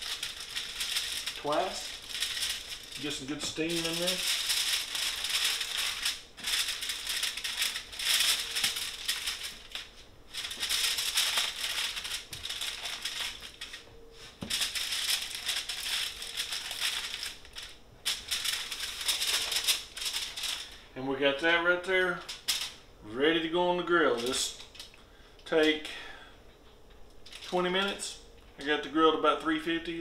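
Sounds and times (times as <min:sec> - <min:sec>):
aluminum foil crinkling: 0:00.0 - 0:20.8, 0:22.2 - 0:22.8, 0:24.1 - 0:25.0, 0:27.2 - 0:28.0.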